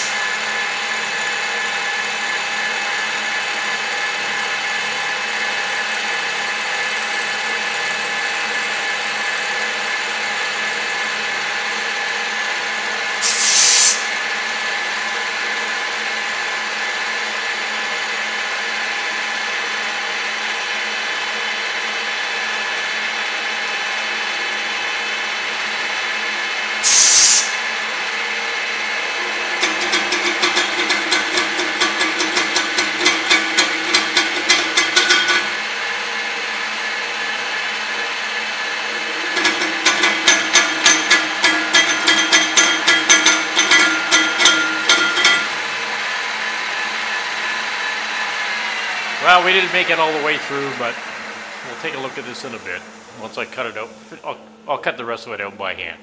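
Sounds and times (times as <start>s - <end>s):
milling machine whine: 0.0s - 54.7s
short loud hisses: 13.2s - 14.1s, 26.8s - 27.5s.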